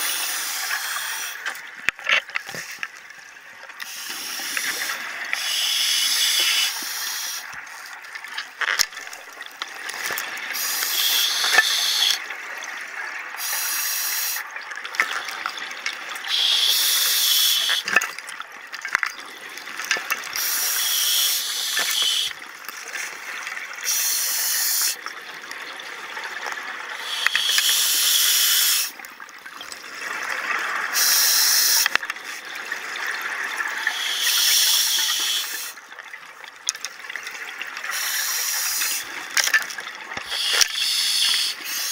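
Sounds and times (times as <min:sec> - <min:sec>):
diver breathing through regulator: 0:27.0 - 0:28.9, 0:33.8 - 0:35.7, 0:40.2 - 0:41.9.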